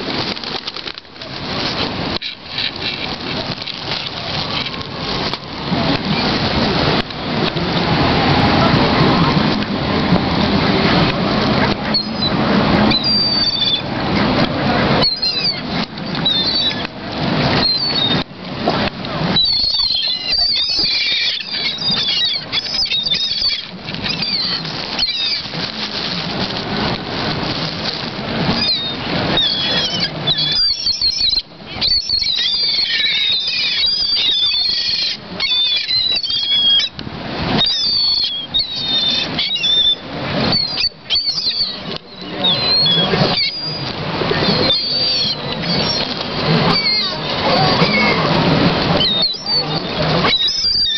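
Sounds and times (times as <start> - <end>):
wings flapping: 0.0 - 9.7, 14.9 - 50.9
gulls squealing calls: 10.9 - 50.9.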